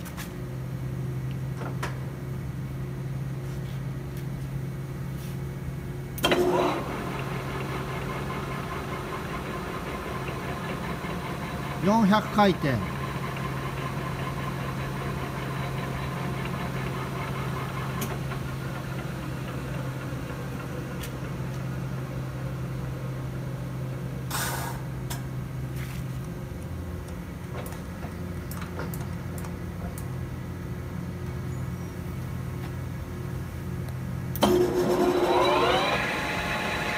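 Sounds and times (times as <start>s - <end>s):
lathe geared hum: 6.2s - 21.7s, 34.4s - 36.9s.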